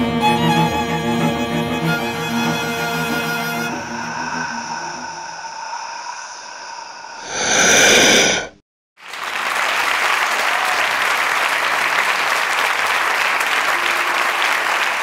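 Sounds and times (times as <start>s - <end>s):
loud sustained sound: 0.0s - 7.3s
audience applauding: 9.0s - 15.0s.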